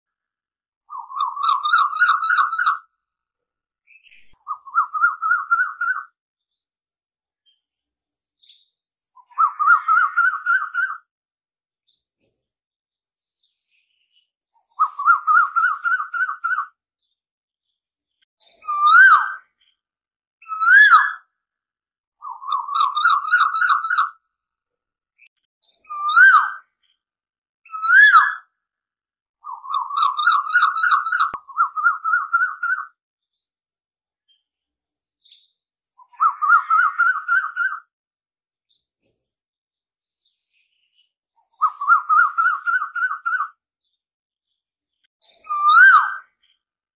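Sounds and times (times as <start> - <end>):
bird calling with rising bubbling notes: 3.8 - 6.2, 9.1 - 11.1, 14.6 - 16.8, 29.4 - 33.0, 35.9 - 37.9, 41.4 - 43.6, 45.4 - 46.4.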